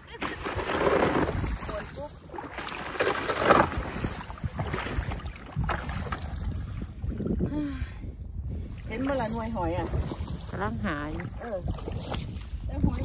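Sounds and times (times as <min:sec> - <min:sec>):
rubber waders wading in water: 0:00.0 - 0:07.4, 0:08.6 - 0:13.0
wind rumble on microphone: 0:00.1 - 0:13.0
bucket sloshing in water: 0:00.2 - 0:07.4, 0:08.8 - 0:13.0.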